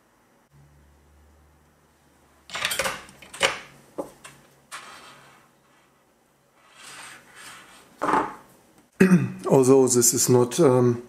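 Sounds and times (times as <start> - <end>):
tools clattering on a desk: 2.5 - 4.9, 8.0 - 8.4.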